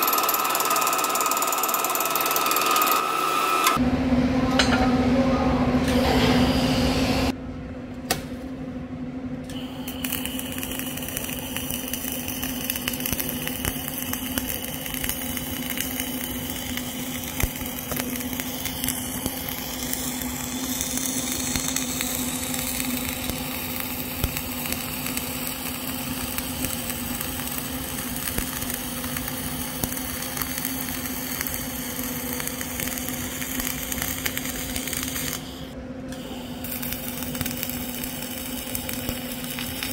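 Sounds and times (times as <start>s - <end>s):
welding arc hissing and crackling: 9.5s - 39.9s.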